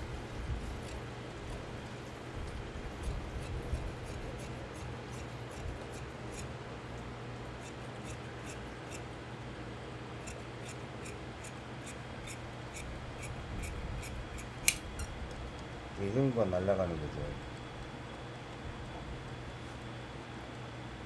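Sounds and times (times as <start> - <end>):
shears snipping fabric: 0.0 - 6.6, 7.6 - 9.1, 10.2 - 15.2.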